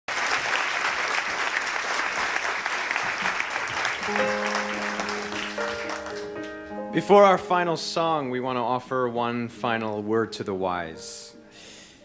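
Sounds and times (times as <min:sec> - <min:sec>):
audience applauding: 0:00.1 - 0:06.6.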